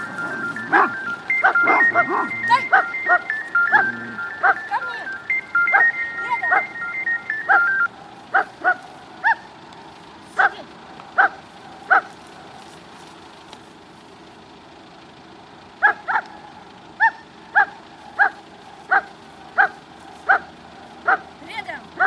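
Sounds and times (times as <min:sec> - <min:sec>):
dog barking: 0:00.4 - 0:04.7, 0:08.3 - 0:09.5, 0:10.3 - 0:12.2, 0:15.8 - 0:16.4, 0:17.0 - 0:21.3.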